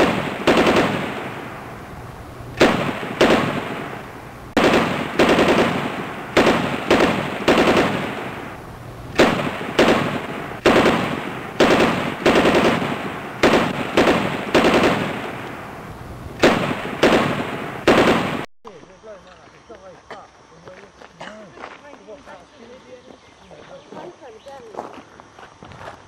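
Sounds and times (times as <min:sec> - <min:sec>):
gunshots echoing: 0:00.0 - 0:18.5.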